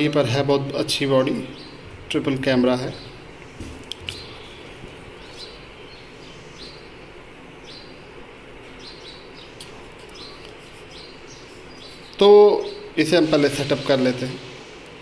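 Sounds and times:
small birds chirping: 0:00.0 - 0:15.0
steady background hiss: 0:00.0 - 0:15.0.

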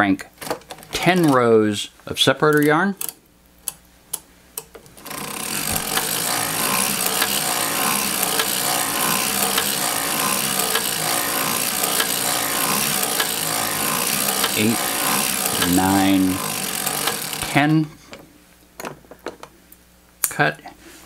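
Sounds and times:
knitting machine metallic clatter: 0:05.0 - 0:17.8.

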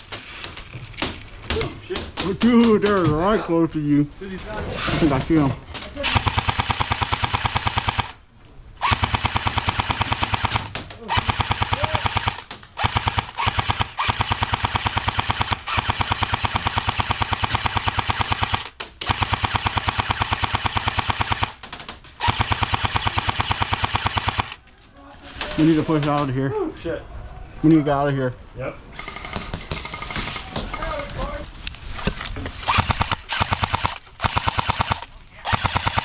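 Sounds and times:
airsoft gun firing bursts: 0:06.0 - 0:08.2, 0:08.8 - 0:24.6, 0:29.0 - 0:30.3, 0:32.7 - 0:36.0.

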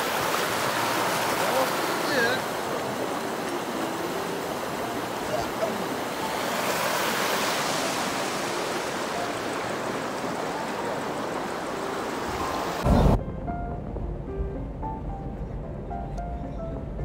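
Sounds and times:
creek water splashing over rocks: 0:00.0 - 0:12.8.

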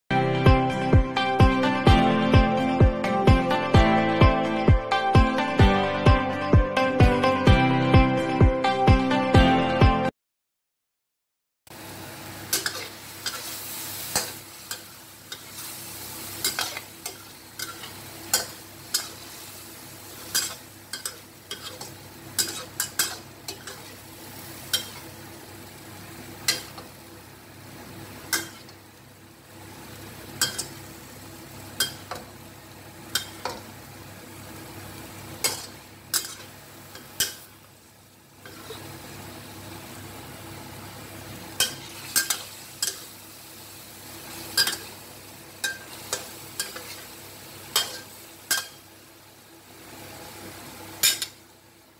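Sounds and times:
food sizzling in a pan: 0:11.7 - 0:51.9
metal spatula scraping a pan: 0:16.4 - 0:24.0, 0:35.4 - 0:37.4.

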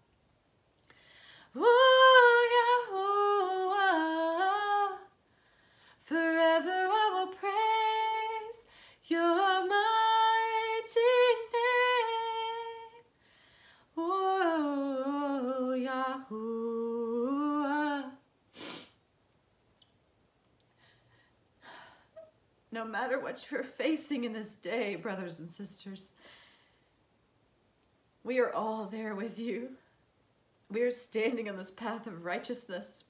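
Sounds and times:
woman singing unaccompanied: 0:01.5 - 0:05.2, 0:06.0 - 0:13.1, 0:14.0 - 0:18.3.

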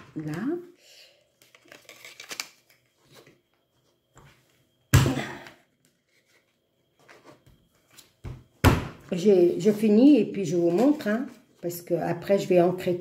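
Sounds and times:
paper handling clicks: 0:01.4 - 0:02.9.

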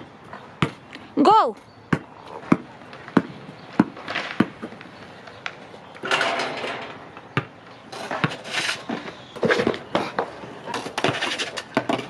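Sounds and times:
basketball bouncing on asphalt: 0:00.0 - 0:00.9, 0:01.5 - 0:05.9, 0:07.0 - 0:08.4.

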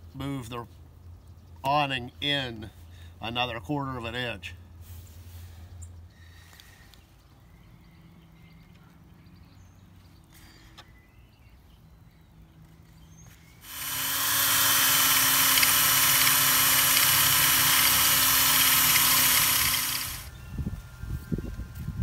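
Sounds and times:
cordless drill boring metal: 0:13.6 - 0:20.3.

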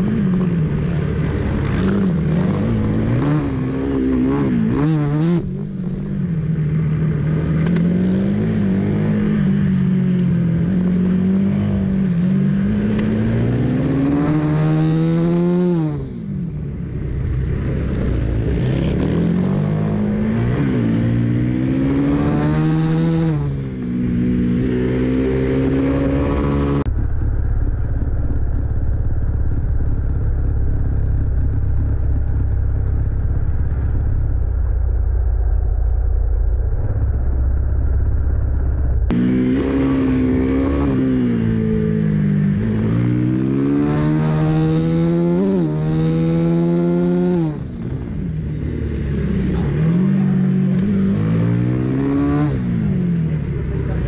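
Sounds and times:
muffled low rumble: 0:00.0 - 0:14.1, 0:23.4 - 0:43.8
motorcycle engine revving: 0:00.0 - 0:54.0.

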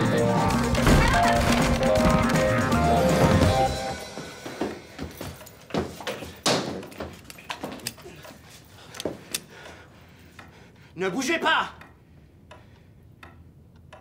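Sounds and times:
music: 0:00.0 - 0:06.0
thumps and knocks of people scuffling: 0:00.7 - 0:09.2.

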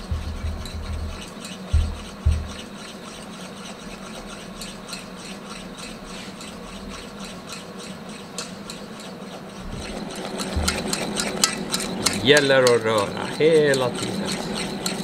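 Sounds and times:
low hum: 0:00.0 - 0:02.6, 0:09.7 - 0:12.2
dull thumps: 0:00.0 - 0:02.8, 0:09.6 - 0:12.3
utensil ticking in saucepan: 0:00.0 - 0:15.0.

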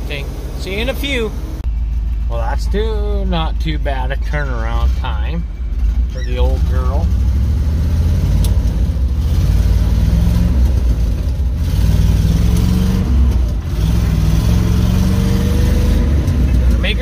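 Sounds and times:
truck engine accelerating: 0:00.0 - 0:17.0.

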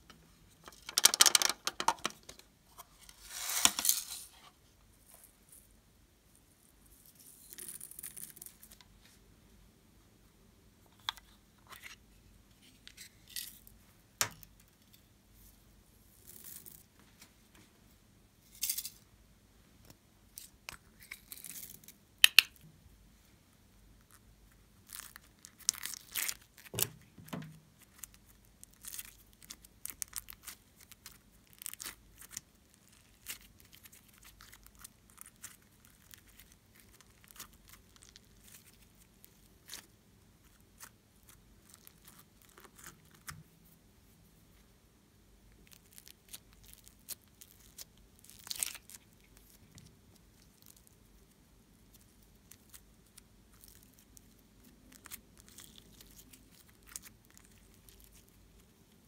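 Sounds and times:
plastic pieces clicking: 0:00.7 - 0:02.4
slime crackling and popping: 0:24.8 - 0:26.9, 0:27.8 - 0:39.9, 0:45.6 - 0:51.0, 0:51.9 - 0:58.9.

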